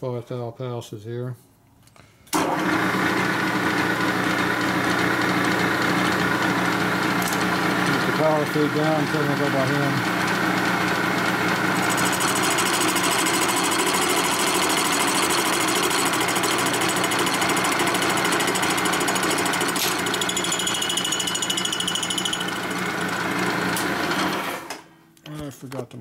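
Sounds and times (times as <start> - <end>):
milling cutter chattering in metal: 11.8 - 23.0.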